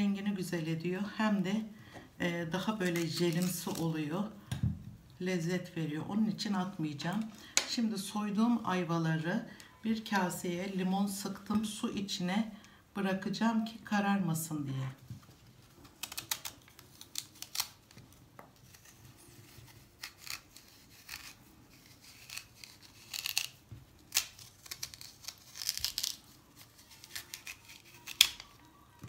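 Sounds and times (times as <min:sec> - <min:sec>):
knife scraping fruit core: 0:18.6 - 0:28.6.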